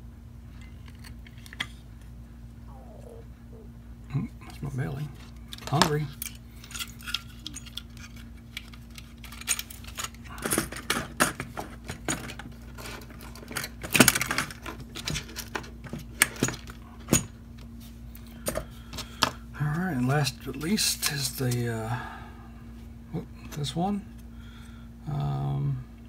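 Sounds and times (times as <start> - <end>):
small parts clicking and rattling: 0.6 - 1.8, 4.5 - 19.4.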